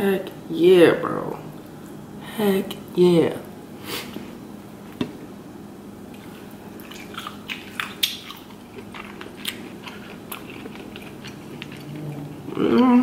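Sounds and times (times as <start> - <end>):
chewing: 6.1 - 13.0.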